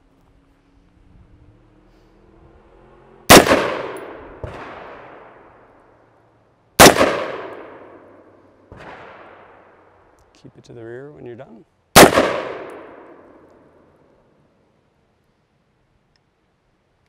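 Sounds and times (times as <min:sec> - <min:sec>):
rifle shots ringing out: 0:03.3 - 0:05.5, 0:06.8 - 0:09.8, 0:12.0 - 0:13.8.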